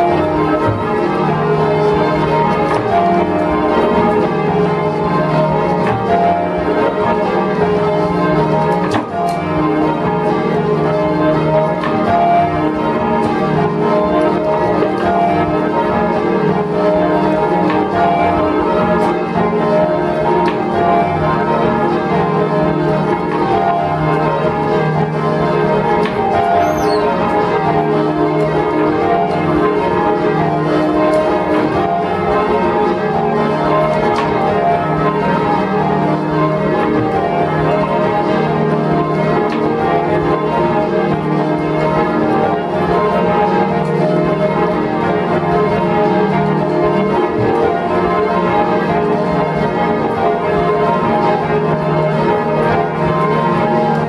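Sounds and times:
church bells ringing: 0.0s - 54.0s.

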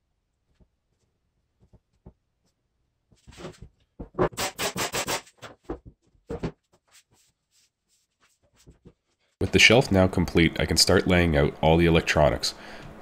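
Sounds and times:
rubbing strokes: 6.8s - 9.4s.

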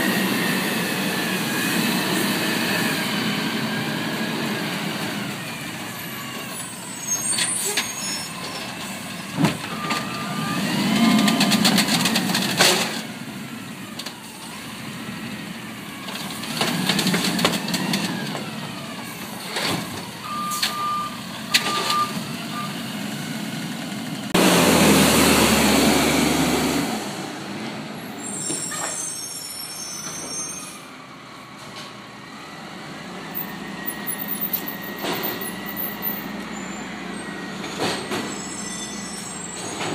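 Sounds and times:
diesel engine revving: 0.0s - 8.0s, 8.6s - 28.4s
short beeps: 20.3s - 22.7s.

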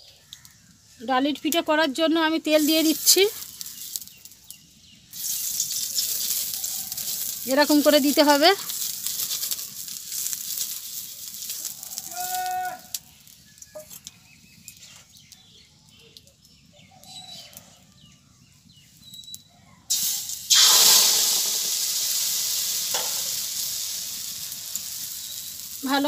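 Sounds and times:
oiled pan hissing faintly: 0.3s - 15.2s, 19.9s - 26.0s
batter sizzling loudly in hot oil: 2.4s - 13.9s, 19.9s - 26.0s.

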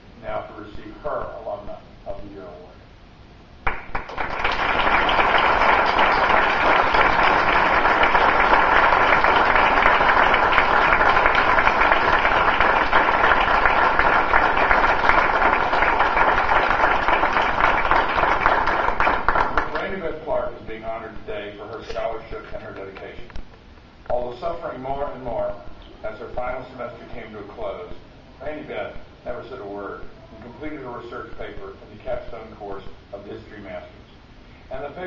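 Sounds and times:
audience applauding: 3.6s - 20.0s.

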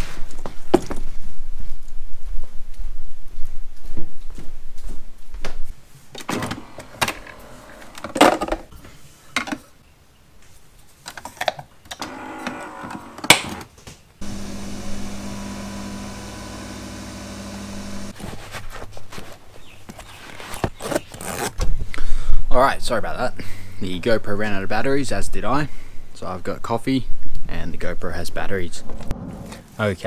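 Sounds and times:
coffee machine motor hum: 14.2s - 18.2s.

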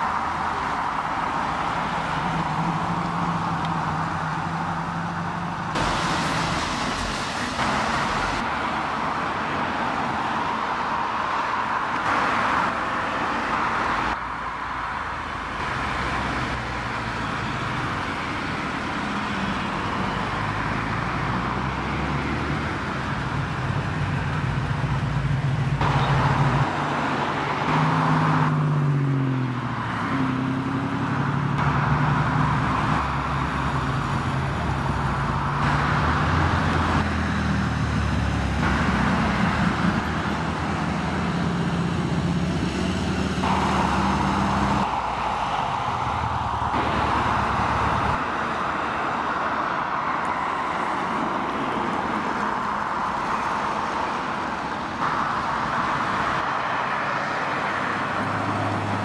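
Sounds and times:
cars driving past: 0.0s - 59.0s
car accelerating and shifting gear: 19.0s - 54.1s.

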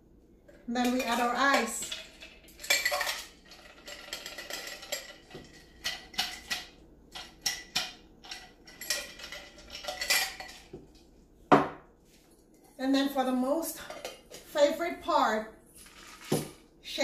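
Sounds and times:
ice cubes clinking into metal tin: 1.0s - 6.7s, 15.8s - 16.6s.

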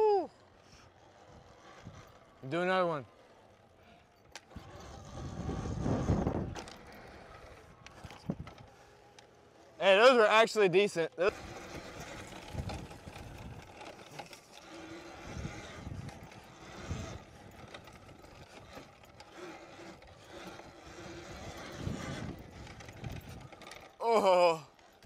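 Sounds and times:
electric motor whining: 0.0s - 10.2s, 11.2s - 25.0s
wind buffeting microphone: 4.6s - 8.6s, 11.3s - 13.8s, 15.2s - 18.7s, 20.8s - 23.6s.

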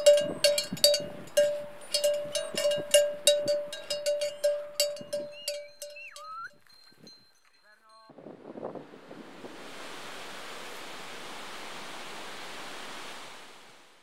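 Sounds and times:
small bell struck: 0.0s - 7.6s.

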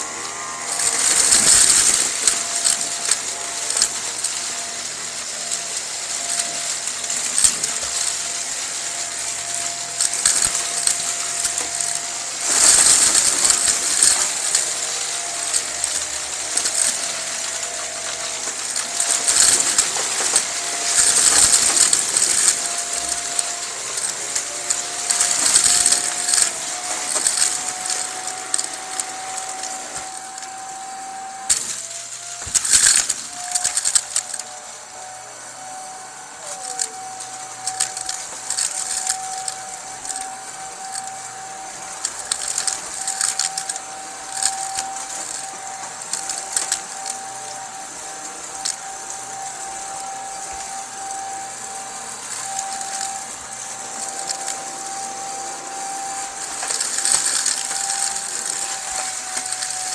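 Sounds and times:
debris rattling in vacuum: 0.0s - 59.9s
vacuum cleaner motor whine: 0.0s - 59.9s.

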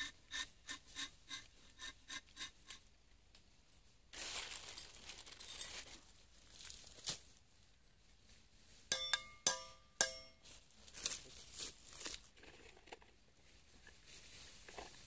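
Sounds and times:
ringing metallic taps: 8.9s - 10.4s.

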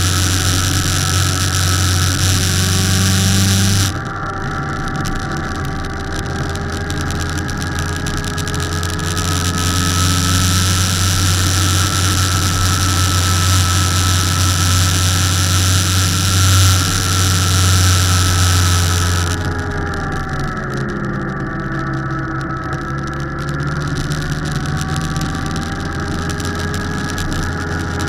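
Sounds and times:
steady hiss: 0.0s - 4.1s, 4.9s - 20.0s
motorcycle engine cruising: 0.0s - 28.0s.

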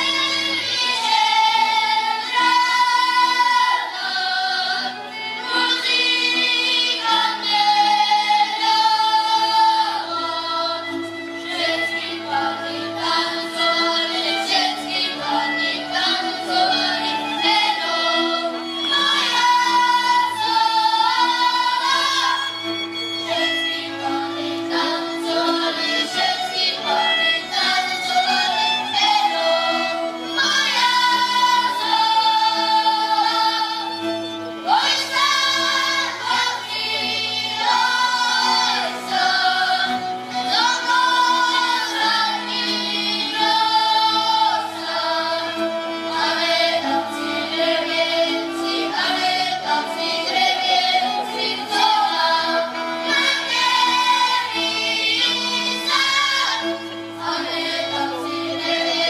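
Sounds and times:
children singing folk song: 0.0s - 59.0s.

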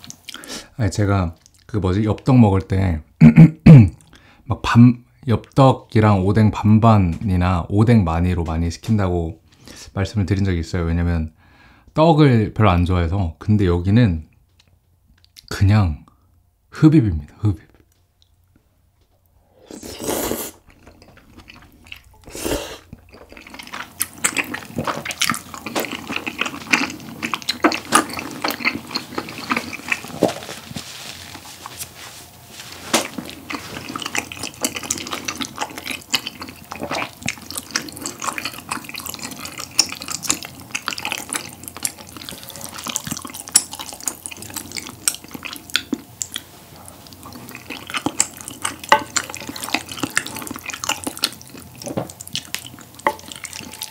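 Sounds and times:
wet chewing and lip smacking: 1.4s - 1.7s, 22.9s - 30.7s, 33.0s - 53.9s
person slurping noodles: 19.5s - 20.6s, 22.2s - 30.4s.

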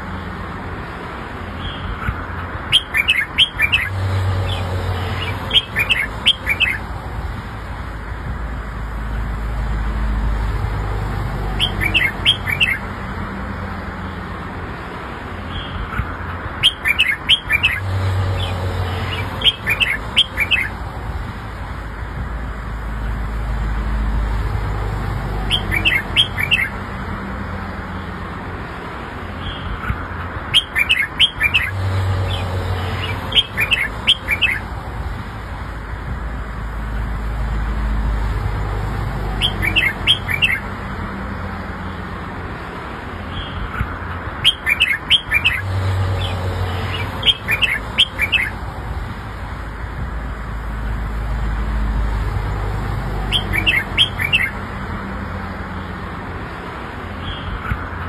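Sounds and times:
bird singing whistled notes: 2.7s - 4.6s, 5.2s - 6.8s, 11.6s - 12.8s, 16.6s - 20.7s, 25.5s - 26.8s, 30.5s - 32.4s, 33.0s - 34.6s, 39.4s - 40.6s, 44.4s - 45.6s, 46.2s - 48.6s, 53.3s - 54.6s.

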